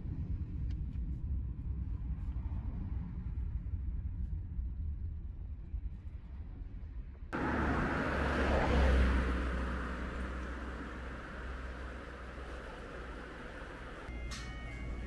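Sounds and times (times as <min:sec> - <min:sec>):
road rumble inside moving car: 0:07.3 - 0:14.2
rushing noise: 0:07.4 - 0:14.1.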